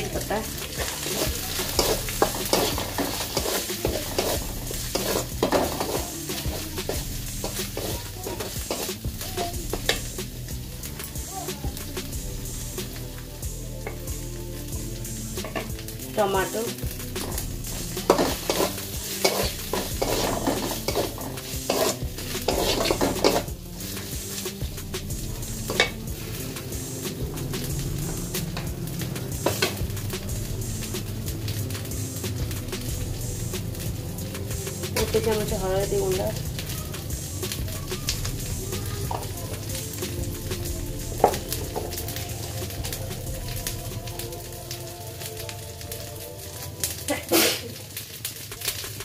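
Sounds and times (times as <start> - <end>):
metal spatula scraping a pan: 0.0 - 9.0, 17.2 - 24.6, 25.5 - 26.9, 29.4 - 29.9
paste sizzling in oil: 0.0 - 49.0.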